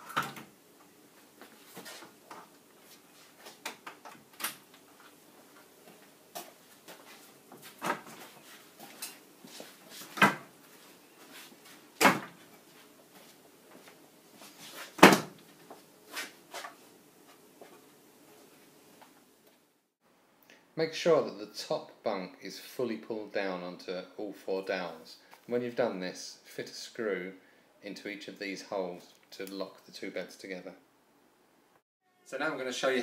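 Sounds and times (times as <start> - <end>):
wooden bed frame clunking: 14.9 - 15.4.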